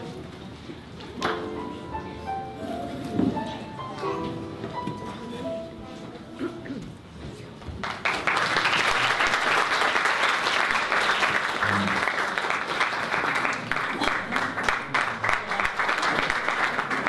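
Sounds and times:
audience applauding: 7.8 - 17.0.

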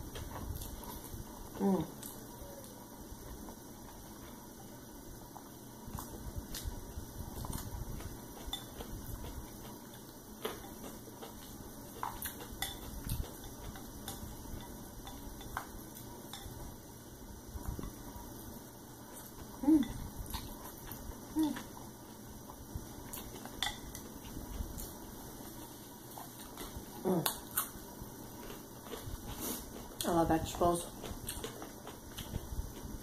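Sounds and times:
chewing noodles: 5.3 - 16.5, 19.1 - 30.2, 30.8 - 33.0.

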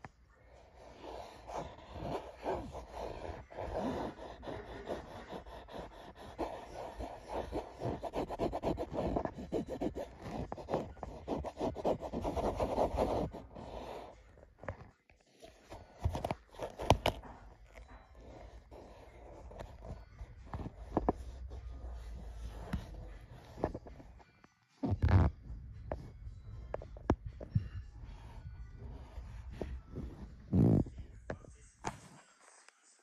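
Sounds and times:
cat scratching wood and carpet: 0.8 - 14.8, 15.5 - 24.2.

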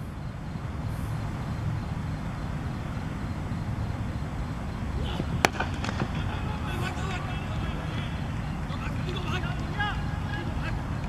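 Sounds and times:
low outdoor rumble: 0.0 - 11.0
cricket bat striking ball: 5.0 - 10.1.

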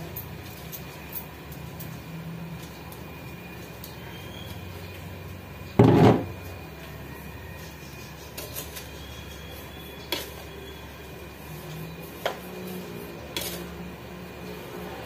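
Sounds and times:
heavy thump: 5.8 - 6.3.

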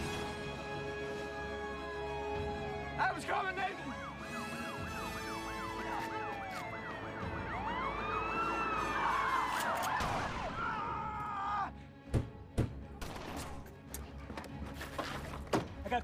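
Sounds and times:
police sirens yelping and wailing: 1.3 - 11.6.

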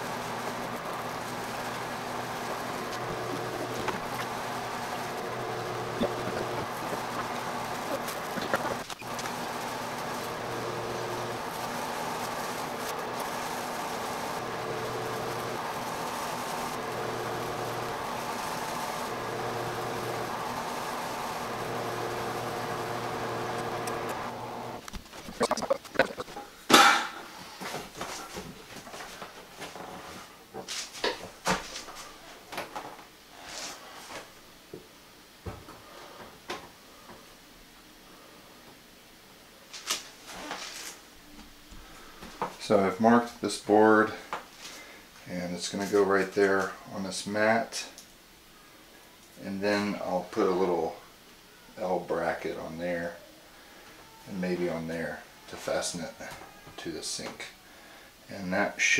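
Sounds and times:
litter box motor humming: 0.0 - 26.4.

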